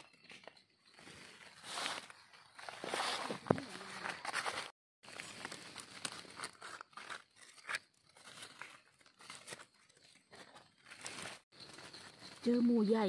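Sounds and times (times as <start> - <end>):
dry leaves crackling and rustling: 0.9 - 13.0.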